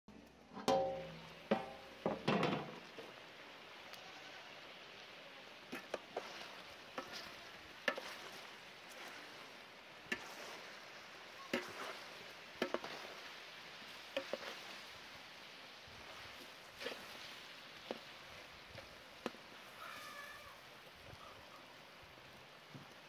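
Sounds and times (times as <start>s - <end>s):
utensil knocking against pan: 0.6s - 2.8s
meat sizzling in a pan: 0.9s - 21.2s.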